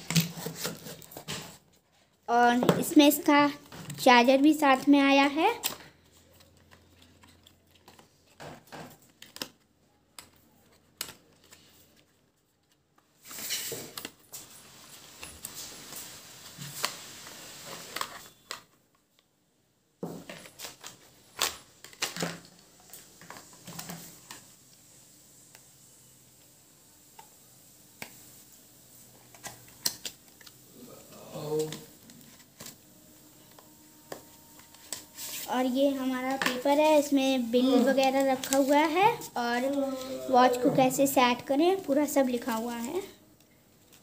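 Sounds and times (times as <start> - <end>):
packaging rustling: 31.5 - 39.8.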